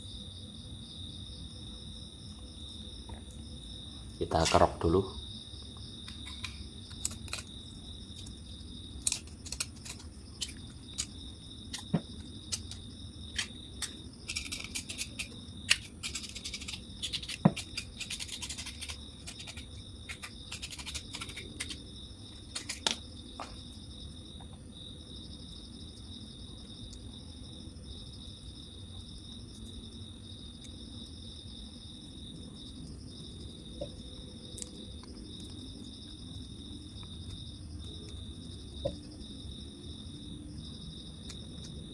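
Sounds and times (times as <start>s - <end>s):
crickets chirring: 0.0s - 41.9s
scraping wire enamel: 9.0s - 11.9s, 12.5s - 21.8s.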